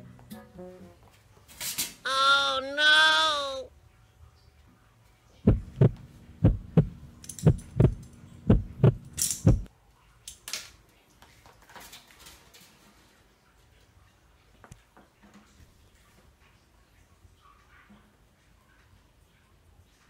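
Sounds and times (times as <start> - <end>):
faint steady hum: 2.1 - 9.7
low dull double thumps: 5.5 - 9.7.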